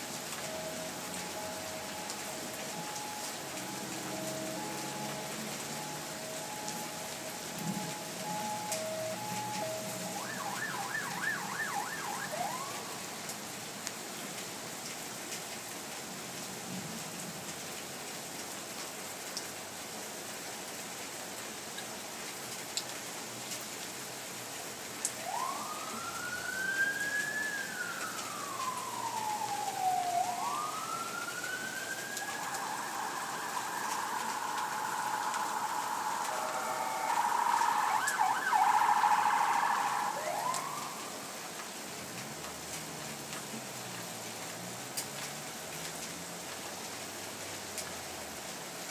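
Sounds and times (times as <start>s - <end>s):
emergency vehicle siren: 0.0s - 13.6s, 24.8s - 47.0s
steady rain: 0.0s - 48.9s.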